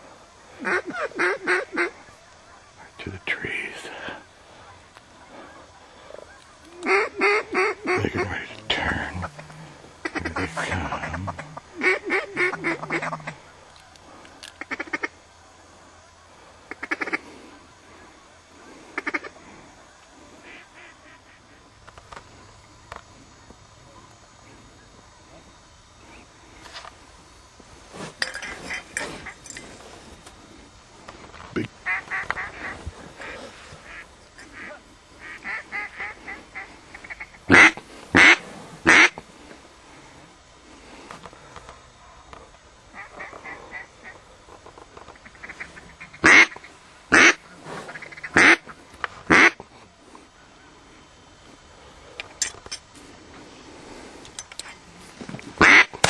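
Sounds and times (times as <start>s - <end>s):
duck quacking: 0.6s - 2.0s, 6.8s - 8.5s, 10.0s - 13.4s, 31.8s - 39.2s, 45.2s - 48.7s, 49.3s - 49.6s, 55.6s - 56.0s.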